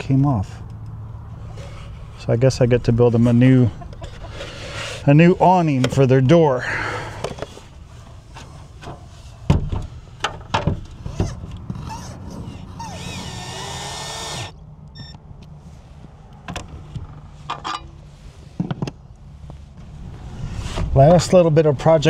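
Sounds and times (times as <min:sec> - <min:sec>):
cordless drill driving screw: 0:12.6 - 0:14.5.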